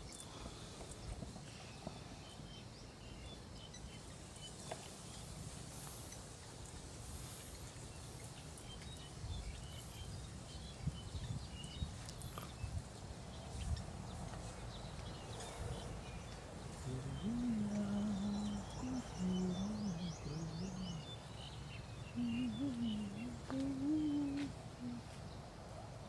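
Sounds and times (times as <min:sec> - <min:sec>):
bird chirps: 0:00.0 - 0:06.6, 0:07.2 - 0:25.4
wind on microphone: 0:07.6 - 0:21.3.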